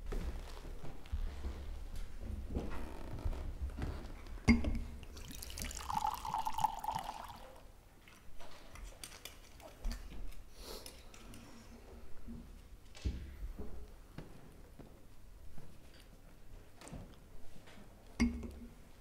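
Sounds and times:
wine pouring into glass: 5.0s - 7.7s.

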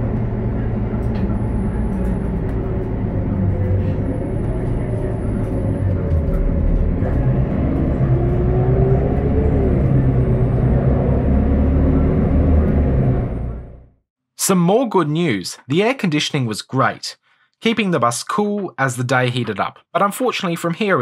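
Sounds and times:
bus engine drone: 0.0s - 14.0s
transmission whine: 0.0s - 14.0s.

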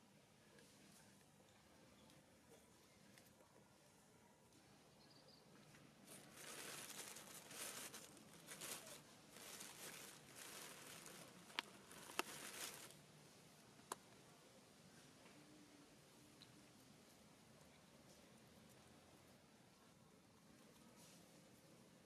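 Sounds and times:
rustling of dry straw and leaves: 6.0s - 13.0s.

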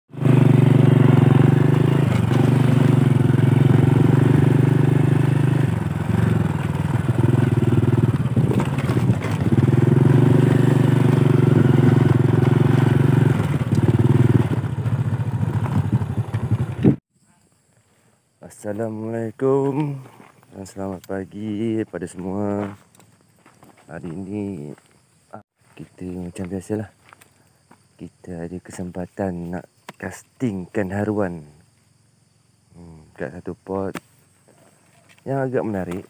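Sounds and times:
motorcycle engine running: 0.1s - 17.0s.

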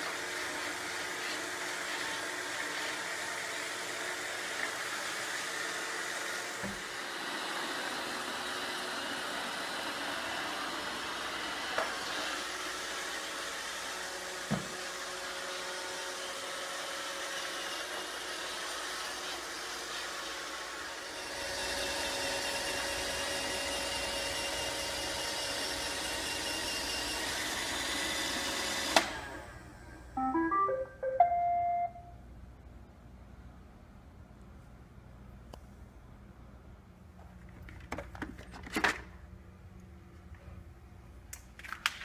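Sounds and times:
rising tune of beeps: 30.2s - 32.1s.

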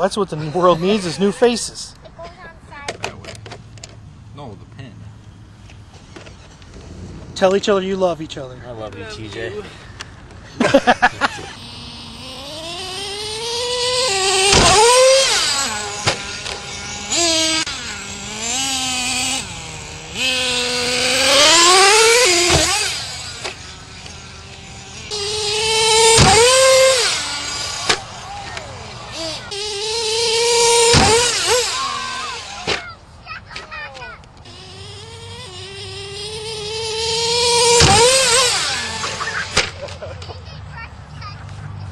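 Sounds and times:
rc truck engine revving: 0.0s - 4.0s, 5.6s - 41.9s
hard thud: 30.9s - 31.5s.

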